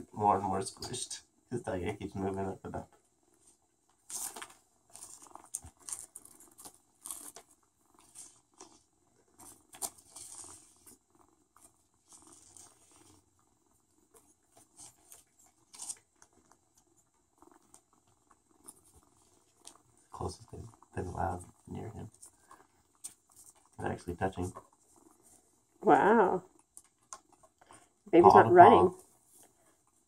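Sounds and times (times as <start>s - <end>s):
kittens' claws scratching on mesh: 3.4s - 23.8s.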